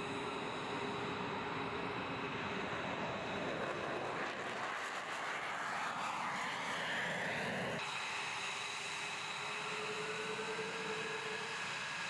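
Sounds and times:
jet engine roar: 0.0 - 12.0.

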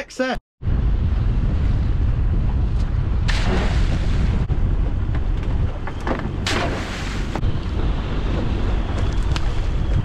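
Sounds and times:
wind buffeting microphone: 0.6 - 10.0
splash in water: 6.4 - 7.4.

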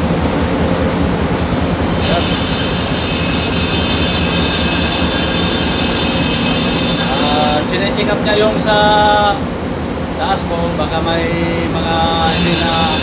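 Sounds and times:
ship machinery noise: 0.0 - 13.0
high-pitched metallic squeal: 0.8 - 9.4, 11.8 - 13.0.

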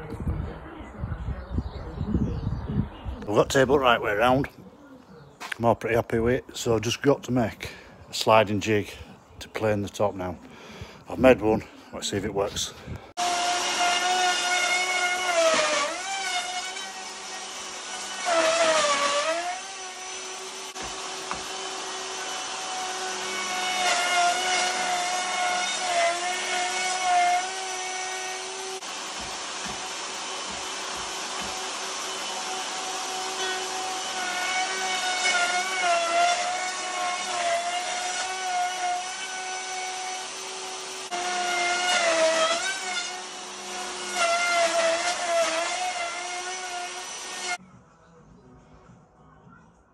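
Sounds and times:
electric router whining: 13.2 - 47.6.

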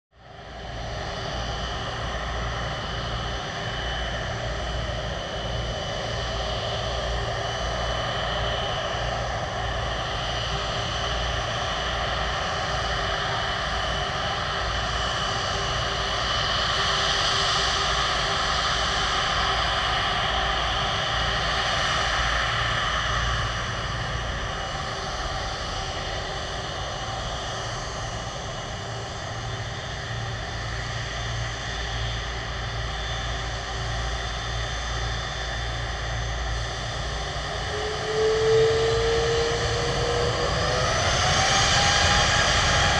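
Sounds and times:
jet engine whine: 0.1 - 42.9
rushing noise: 37.2 - 42.9.

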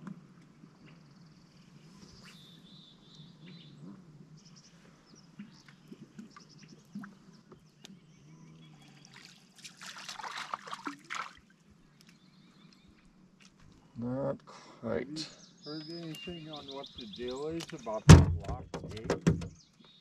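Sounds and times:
water splashing and trickling: 5.4 - 7.6, 8.8 - 12.2.

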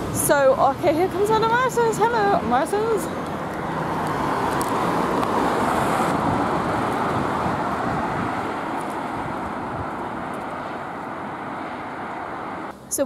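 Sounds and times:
car driving past: 3.0 - 12.7.

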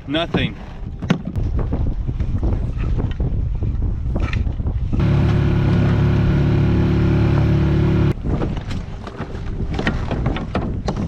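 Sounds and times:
wind on microphone: 0.4 - 11.0
outboard motor running: 5.0 - 10.1
water splashing: 5.0 - 10.1.

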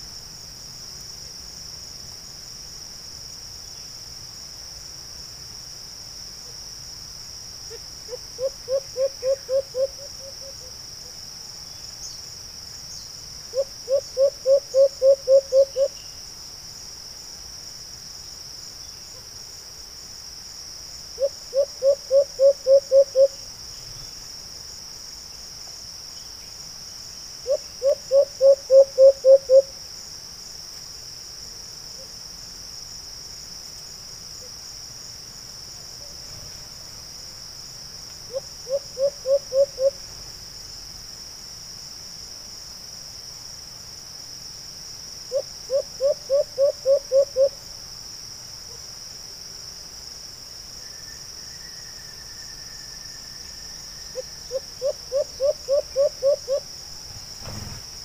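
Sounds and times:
high insect drone: 0.0 - 58.0
dove hooting: 8.1 - 10.6, 13.5 - 15.9, 21.2 - 23.4, 27.5 - 29.7, 38.3 - 40.0, 45.3 - 47.6, 54.2 - 56.7.

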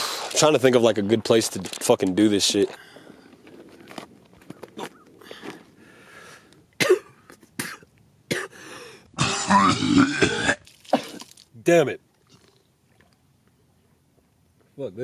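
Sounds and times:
man coughing hard: 6.8 - 8.6, 9.2 - 11.3.

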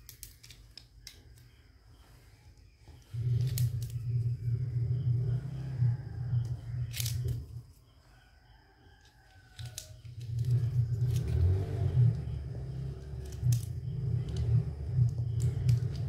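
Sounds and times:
plastic toy utensils clicking: 0.0 - 1.5
low rumble: 3.0 - 7.6.

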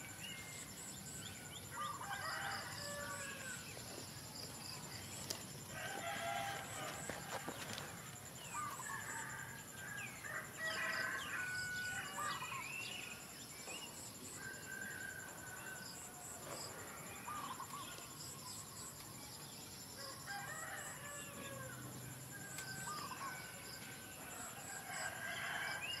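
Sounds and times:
rooster crowing: 1.7 - 3.6, 5.8 - 7.5, 8.7 - 12.4, 20.0 - 21.8, 24.2 - 26.0.

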